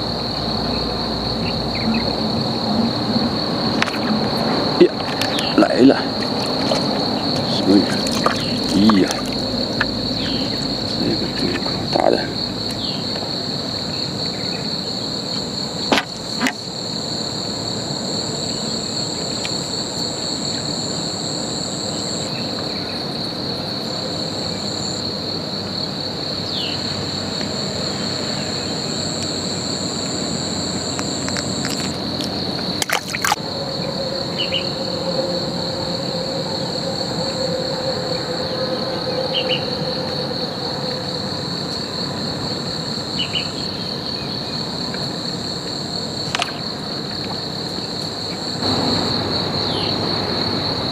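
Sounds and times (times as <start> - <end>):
higher insect drone: 0.0 - 50.9
insect chorus: 0.0 - 50.9
fish splashing: 3.9 - 11.8, 31.2 - 33.4.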